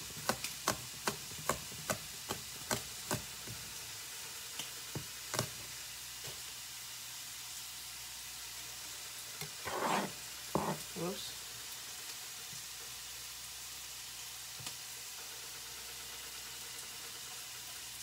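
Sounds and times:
pork sizzling in a pan: 0:00.0 - 0:18.0
knife chopping on plastic board: 0:00.2 - 0:03.3, 0:09.6 - 0:10.8
blade scraping across board: 0:09.6 - 0:10.9.

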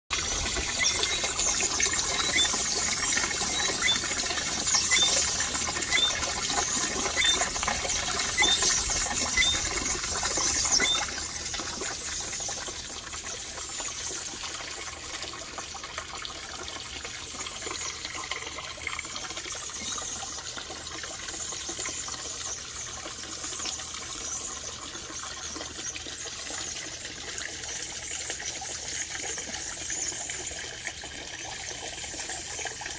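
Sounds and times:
garden birds chirping in chorus: 0:00.2 - 0:14.8.

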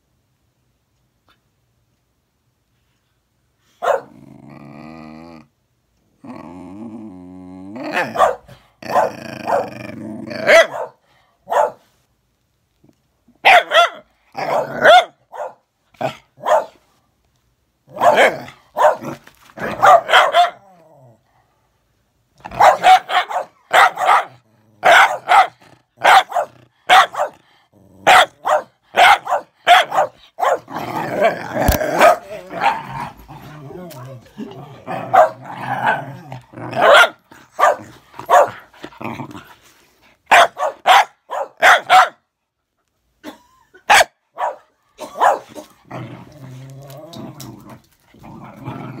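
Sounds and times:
dogs barking: 0:03.8 - 0:04.1, 0:08.0 - 0:09.7, 0:10.4 - 0:11.8, 0:13.4 - 0:16.8, 0:17.9 - 0:20.6, 0:22.4 - 0:27.4, 0:28.0 - 0:30.8, 0:31.9 - 0:32.9, 0:35.0 - 0:35.5, 0:36.7 - 0:38.6, 0:40.3 - 0:42.2, 0:43.9 - 0:45.7
dog growling: 0:04.0 - 0:10.9, 0:17.9 - 0:21.3, 0:24.3 - 0:28.5, 0:30.6 - 0:39.7, 0:45.0 - 0:49.0.

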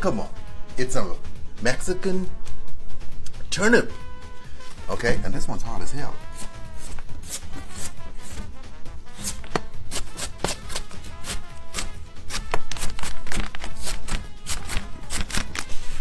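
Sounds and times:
background music: 0:00.0 - 0:16.0
knife chopping on cutting board: 0:06.3 - 0:08.4, 0:09.2 - 0:15.5.

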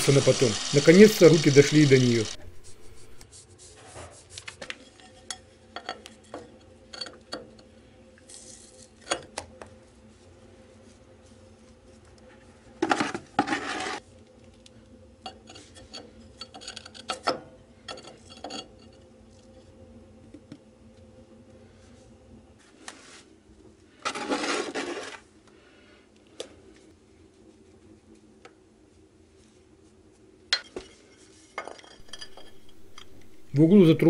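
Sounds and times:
hard objects clinking and tapping: 0:31.6 - 0:33.6.

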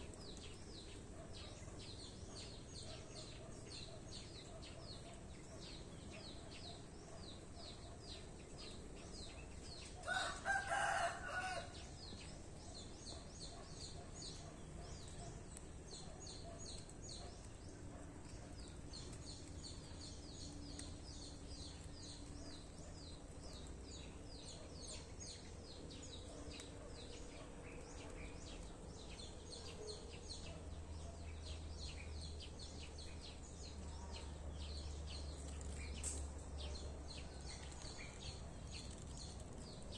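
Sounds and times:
rooster crowing: 0:10.0 - 0:11.8.

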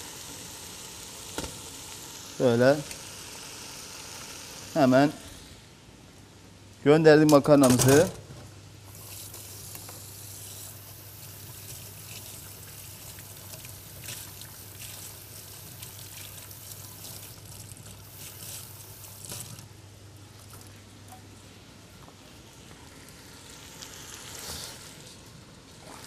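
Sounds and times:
pasta sizzling in hot oil: 0:00.0 - 0:05.6, 0:08.9 - 0:19.7, 0:23.2 - 0:25.2.

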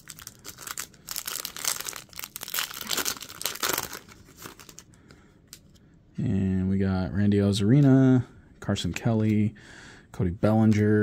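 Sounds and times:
foil wrapper crinkling and tearing: 0:00.0 - 0:04.9.

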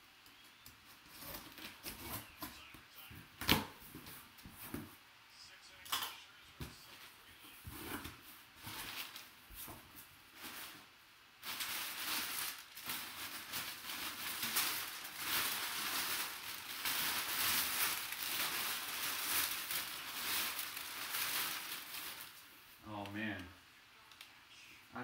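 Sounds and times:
packing paper crinkling: 0:07.7 - 0:23.3.

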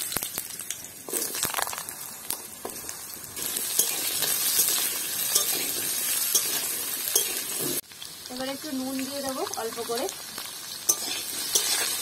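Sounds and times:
potatoes sizzling in oil: 0:00.0 - 0:12.0.

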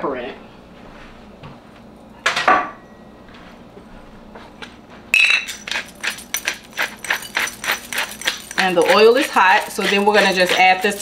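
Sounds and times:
sharp clink: 0:05.2 - 0:09.0
pepper grinder crunchy clicks: 0:05.5 - 0:11.0.

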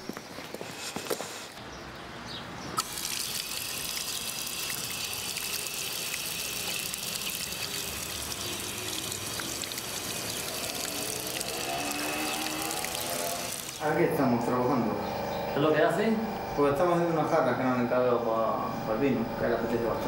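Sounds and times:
fountain water splashing into basin: 0:02.8 - 0:13.9.

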